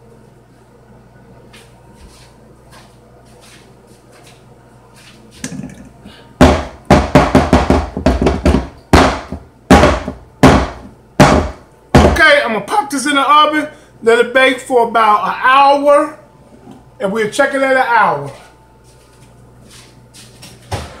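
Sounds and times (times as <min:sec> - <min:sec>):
cake pan banged on wooden counter: 0:06.4 - 0:12.2.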